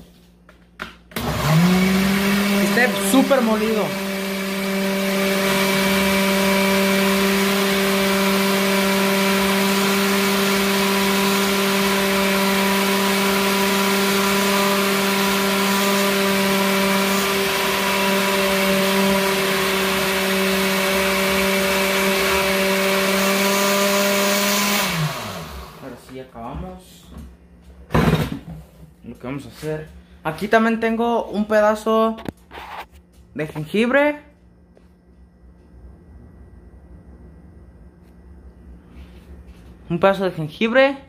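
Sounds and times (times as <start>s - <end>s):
blender running: 1.1s - 26.0s.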